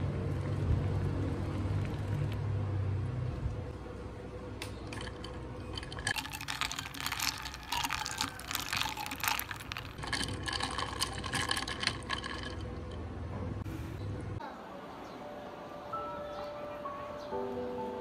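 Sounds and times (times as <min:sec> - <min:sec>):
ice cubes clinking in a glass: 0:04.9 - 0:13.0.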